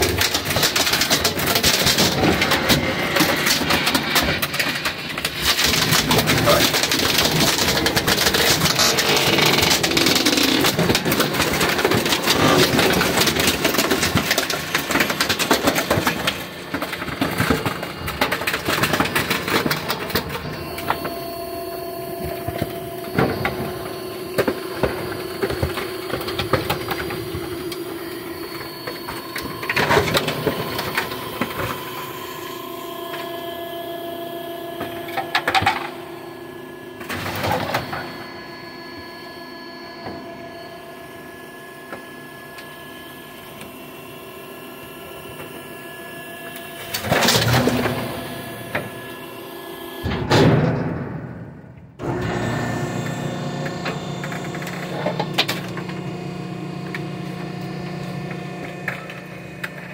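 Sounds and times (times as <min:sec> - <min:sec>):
wood cracking and crunching: 0:00.0 - 0:32.1
compactor motor whine: 0:00.0 - 0:59.9.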